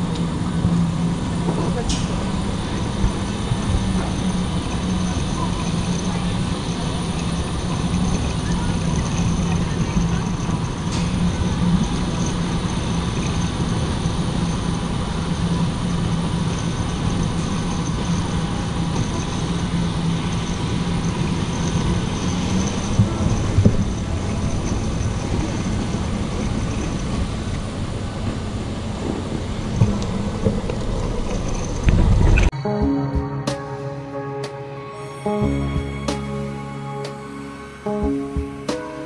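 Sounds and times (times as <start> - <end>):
jet engine rumble and whine: 0.0 - 32.6.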